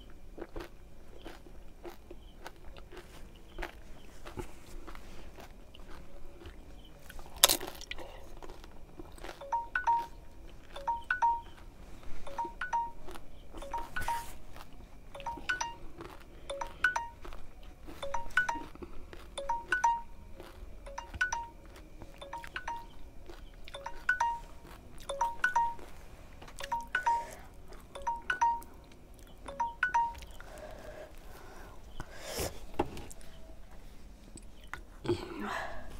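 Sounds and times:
phone alarm chime tone: 9.4 - 11.6, 12.2 - 14.4, 15.2 - 15.9, 16.5 - 17.3, 18.0 - 18.8, 19.4 - 20.3, 20.9 - 23.0, 23.7 - 26.0, 26.6 - 27.4, 28.0 - 30.5.

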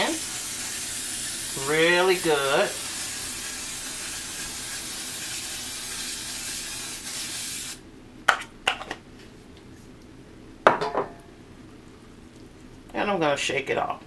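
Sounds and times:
aerosol spray hissing: 0.0 - 7.8.

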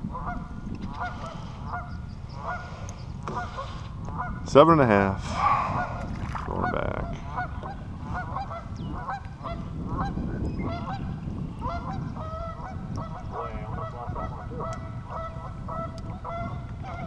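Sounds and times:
geese honking: 7.3 - 11.0, 11.6 - 17.0.

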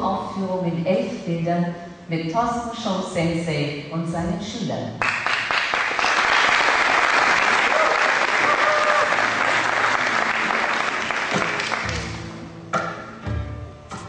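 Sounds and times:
audience applauding: 5.0 - 12.3
low notes of live music: 8.4 - 14.0.

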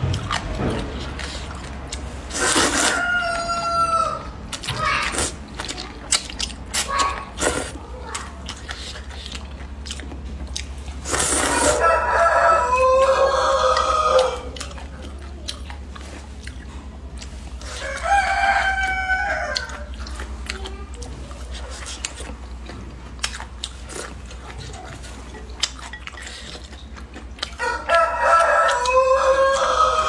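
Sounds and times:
slurping and chewing noodles: 0.0 - 30.0
rooster crowing: 2.8 - 4.3, 11.5 - 14.6, 17.7 - 19.9, 27.6 - 30.0.

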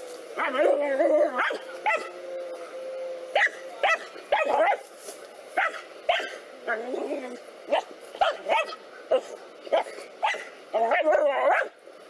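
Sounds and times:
dog barking: 1.4 - 2.1, 3.4 - 4.8, 5.6 - 6.4, 7.7 - 11.7.

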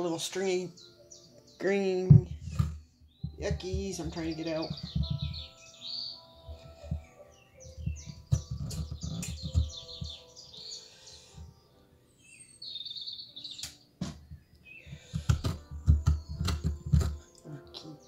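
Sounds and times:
metal spoon scraping squash: 7.9 - 10.2, 14.9 - 17.3.

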